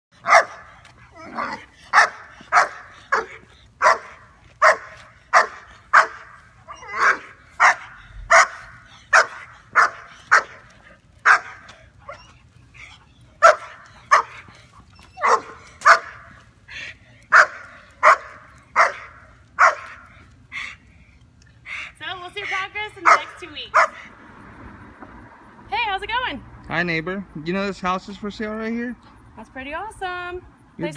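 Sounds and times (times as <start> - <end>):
dog barking: 0.2 - 0.7, 1.4 - 10.6, 11.2 - 11.7, 13.4 - 14.4, 15.2 - 16.3, 17.3 - 20.0, 23.0 - 24.1.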